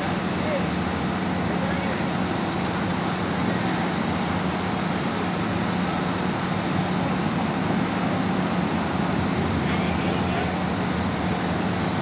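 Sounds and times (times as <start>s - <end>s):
idling vehicle engines drone: 0.0s - 12.0s.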